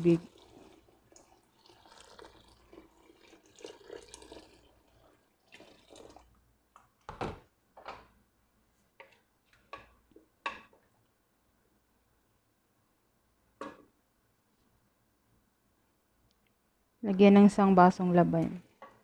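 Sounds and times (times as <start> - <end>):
water drips and splashes: 0.0 - 6.4
water pouring into a metal pot: 0.0 - 6.4.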